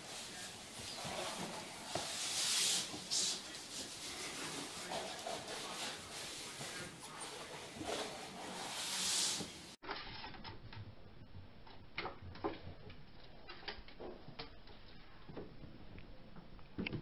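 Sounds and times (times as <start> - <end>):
broom swishing on wooden floor: 0.0 - 9.8.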